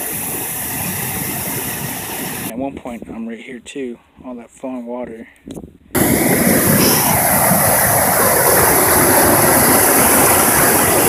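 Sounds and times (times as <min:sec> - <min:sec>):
flood water rushing: 0:00.0 - 0:02.5, 0:06.0 - 0:11.0.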